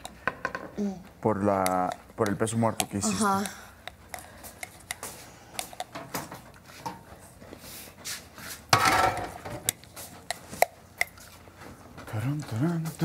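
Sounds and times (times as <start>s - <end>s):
dishes and utensils clattering: 8.7s - 9.7s.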